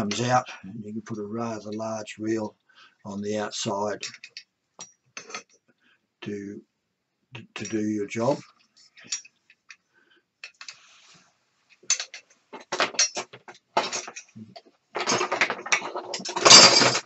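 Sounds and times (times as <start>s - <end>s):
hand tools clinking on workbench: 4.0s - 5.6s, 11.8s - 17.0s.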